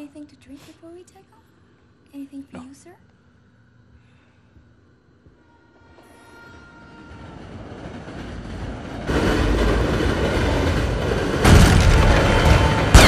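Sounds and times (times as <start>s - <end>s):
deep rumbling noise: 7.4s - 13.0s.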